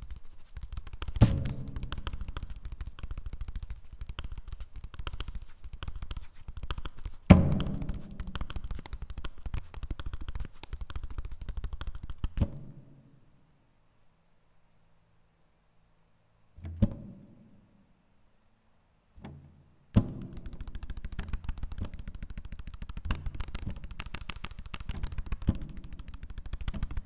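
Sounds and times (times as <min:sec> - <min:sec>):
fast roll of strikes on paper: 0:00.0 - 0:12.4, 0:20.0 - 0:27.0.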